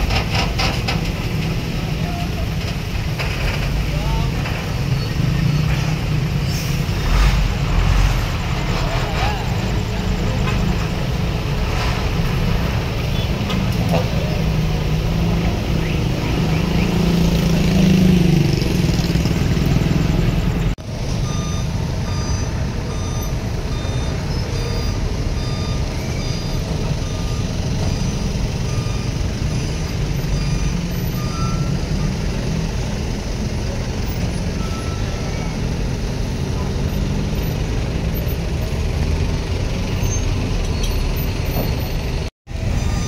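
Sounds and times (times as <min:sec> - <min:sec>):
diesel engine rumble: 0:00.0 - 0:43.0
reversing alarm beeping: 0:21.1 - 0:32.2, 0:42.6 - 0:43.0.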